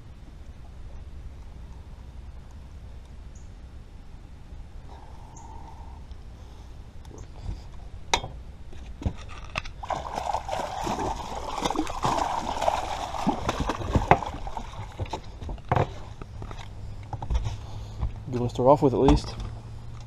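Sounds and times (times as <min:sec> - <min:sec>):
fish thrashing and splashing: 0:09.8 - 0:15.5.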